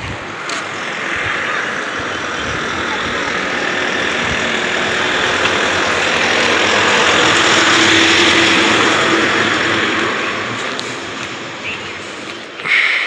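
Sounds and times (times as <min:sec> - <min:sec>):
motor vehicle passing: 0:00.0 - 0:13.0.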